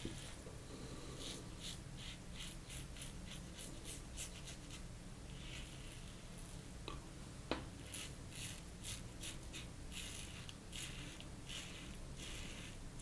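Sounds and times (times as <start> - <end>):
razor scraping stubble: 7.8 - 13.0.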